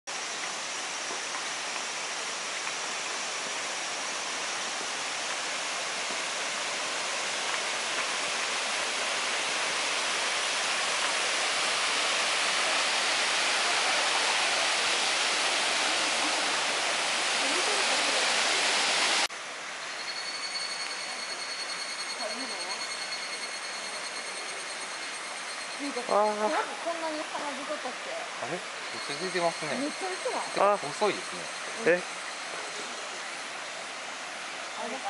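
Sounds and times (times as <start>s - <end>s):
stream rushing over cascades: 0.1s - 21.4s, 24.0s - 35.0s
faint steady high tones: 19.8s - 35.0s.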